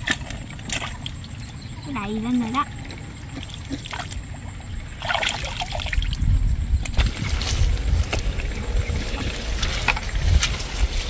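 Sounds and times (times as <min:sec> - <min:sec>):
muddy water sloshing and splashing: 0:00.0 - 0:11.0
low rumble: 0:05.8 - 0:11.0.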